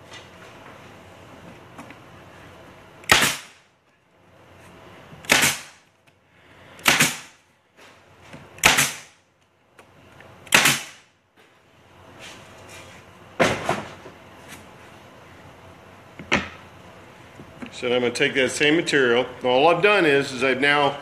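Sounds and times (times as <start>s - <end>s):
staple gun firing: 3.0s - 3.5s, 10.5s - 11.0s.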